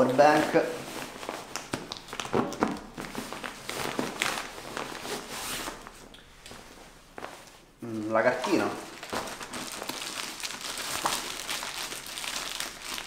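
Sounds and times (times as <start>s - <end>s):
backpack fabric rustling: 0.0s - 7.7s.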